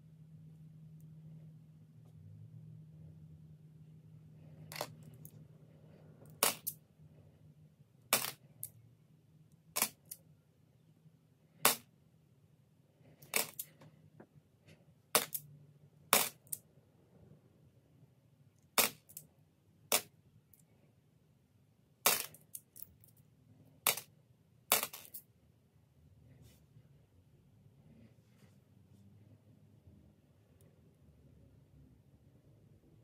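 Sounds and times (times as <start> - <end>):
coins clicking set down: 13.3 - 13.7, 24.7 - 25.2.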